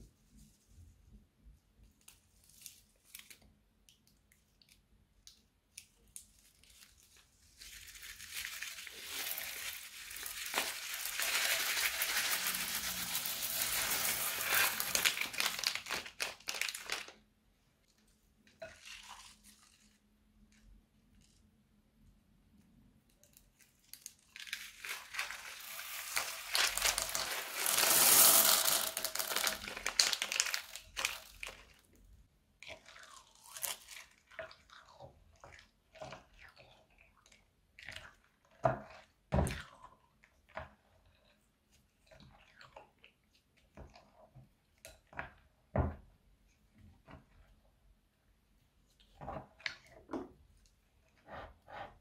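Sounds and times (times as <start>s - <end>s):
spatula stirring beads in slime: 3.8s - 17.0s, 22.4s - 45.7s
beads squeezed onto slime crackling: 5.8s - 17.2s, 23.2s - 31.8s.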